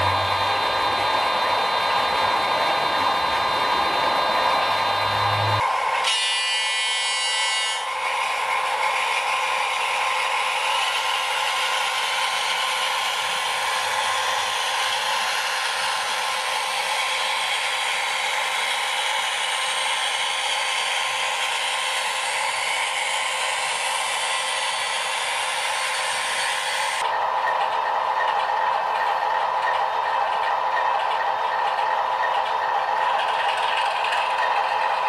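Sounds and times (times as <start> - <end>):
tinny diesel engine sound from speaker: 0.0 - 1.8, 4.6 - 5.6.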